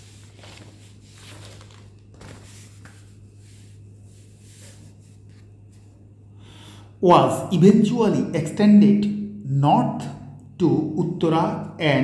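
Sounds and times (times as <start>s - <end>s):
paper page rustling: 0.0s - 5.9s
steady low hum: 0.0s - 12.0s.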